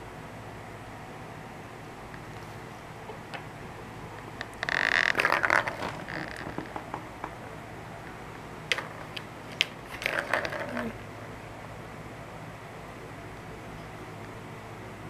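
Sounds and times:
plastic balls rolling and rattling: 4.4s - 7.4s, 8.7s - 11.0s.

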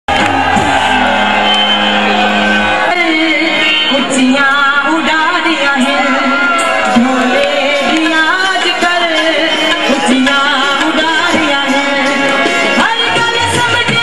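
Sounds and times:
person singing over music: 3.3s - 14.0s.

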